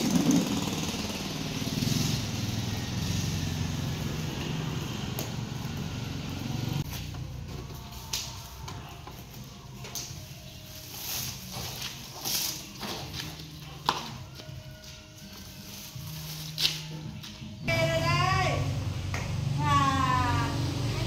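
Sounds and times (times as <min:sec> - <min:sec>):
motorbike engine idling: 0:00.0 - 0:09.3.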